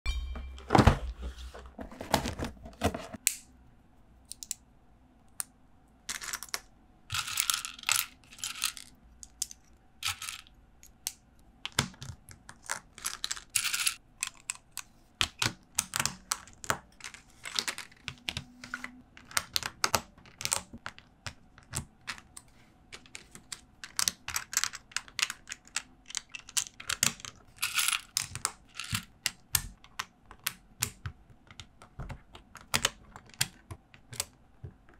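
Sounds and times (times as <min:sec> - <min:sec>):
plastic bricks clicking together: 0:22.9 - 0:34.4.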